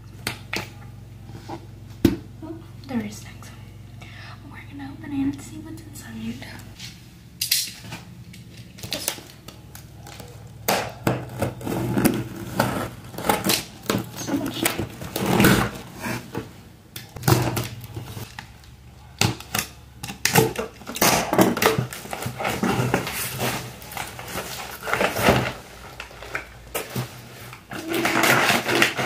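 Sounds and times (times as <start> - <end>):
packing tape tearing: 7.4 - 16.0, 17.0 - 29.0
cardboard flaps scraping: 11.0 - 16.6, 21.4 - 29.0.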